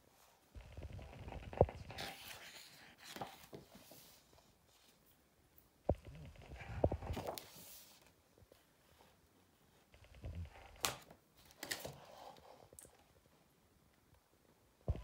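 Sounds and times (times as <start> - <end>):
paper pages rustling: 0.8 - 5.0, 6.3 - 8.6, 10.7 - 12.5.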